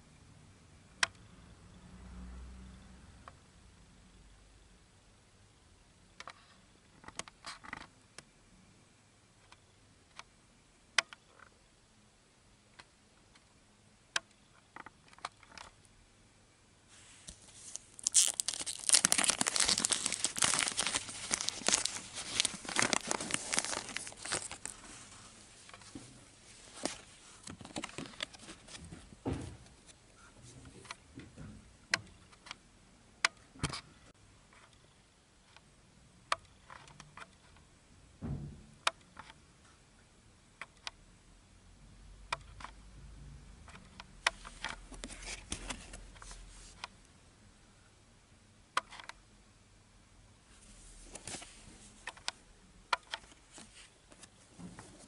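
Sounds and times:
foil wrapper crinkling: 17.2s - 25.2s.

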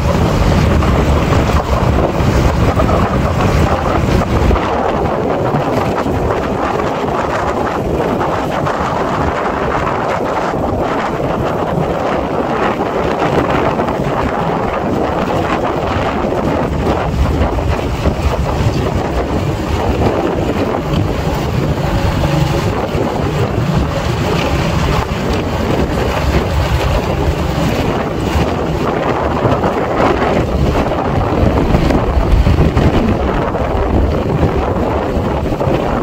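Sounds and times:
wind rushing over microphone: 0.0s - 36.0s
motorcycle engine running: 13.0s - 35.9s.

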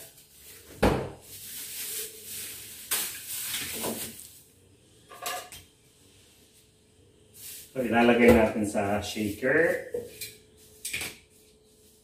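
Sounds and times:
kitchen things clattering: 5.0s - 5.7s.

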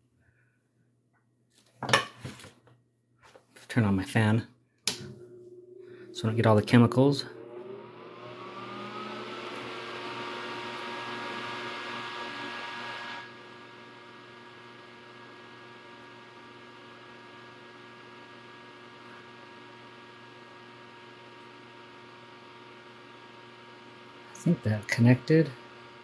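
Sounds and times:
steady hum: 4.8s - 12.4s
extraction fan whirring: 4.8s - 26.0s.

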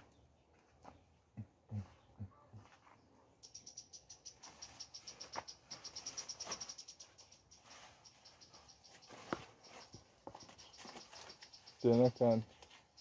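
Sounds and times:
cricket chirping: 3.4s - 12.4s
leaves rustling: 4.4s - 12.9s.

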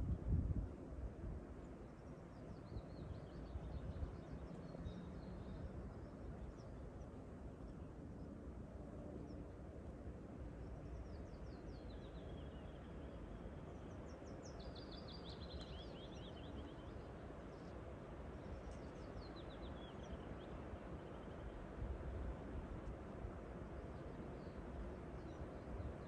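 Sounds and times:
songbird singing: 1.6s - 8.4s, 10.4s - 21.8s, 23.7s - 26.0s.

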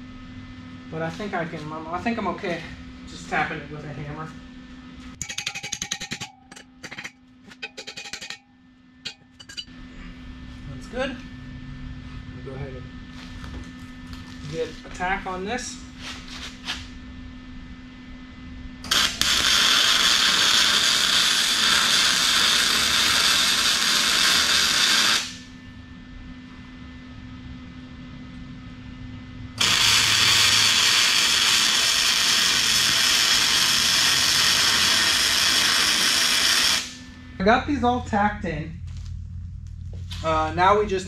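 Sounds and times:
welder arc crackling and hissing: 18.8s - 25.6s, 29.6s - 41.0s.

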